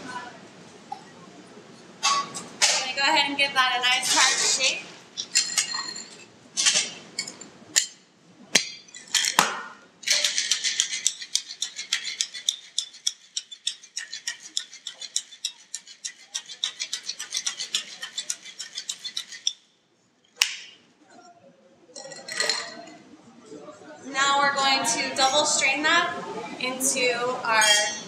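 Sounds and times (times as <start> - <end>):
ice clinking into metal shaker: 10.0 - 19.5
ice rattling in shaker: 10.0 - 19.5.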